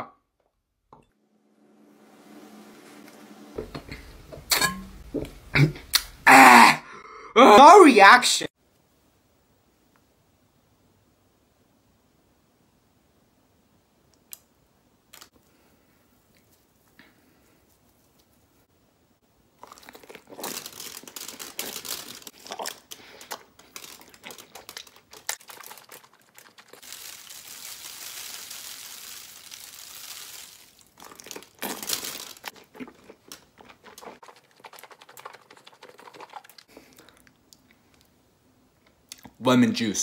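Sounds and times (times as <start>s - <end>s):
sticky food squelching and tearing: 19.6s - 37.7s
liquid pouring from bottle: 25.0s - 31.4s.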